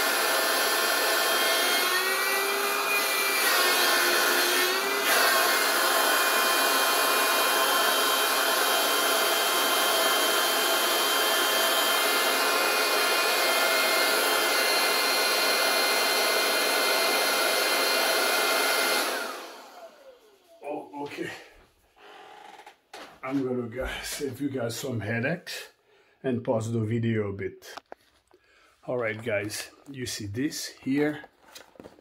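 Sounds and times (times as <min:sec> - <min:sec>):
electric air pump whining: 0:00.0 - 0:21.1.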